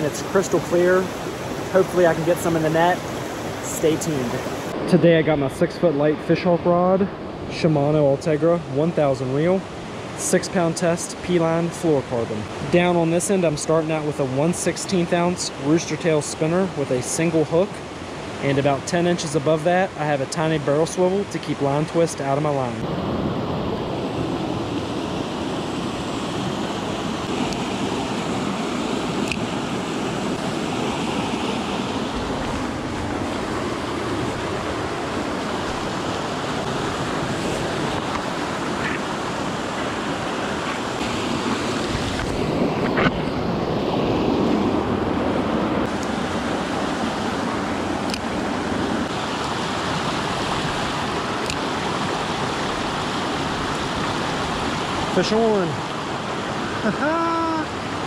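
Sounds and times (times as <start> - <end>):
creek rushing over rocks: 0.0 - 4.8, 25.6 - 58.0.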